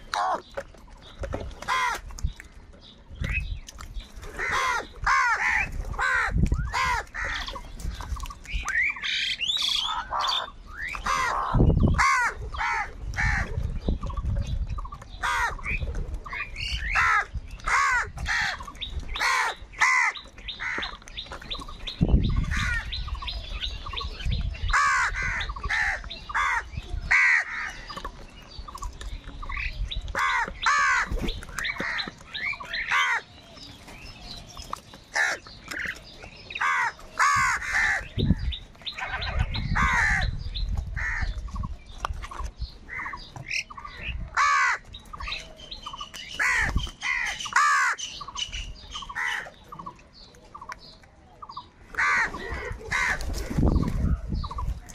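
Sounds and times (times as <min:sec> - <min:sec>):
crows cawing: 0:01.6 - 0:02.1, 0:04.3 - 0:07.6, 0:09.8 - 0:13.5, 0:15.2 - 0:15.8, 0:16.9 - 0:18.6, 0:19.2 - 0:21.0, 0:22.4 - 0:22.9, 0:24.7 - 0:28.0, 0:30.2 - 0:33.4, 0:35.1 - 0:35.9, 0:36.6 - 0:40.4, 0:41.0 - 0:41.4, 0:44.3 - 0:45.0, 0:46.4 - 0:48.0, 0:49.1 - 0:49.6, 0:52.0 - 0:53.3.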